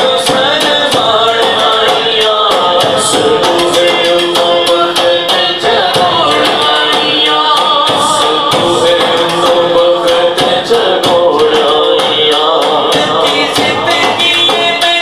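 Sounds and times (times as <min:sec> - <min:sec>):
men singing through microphones: 0:00.0 - 0:15.0
steady percussion beat: 0:00.0 - 0:15.0.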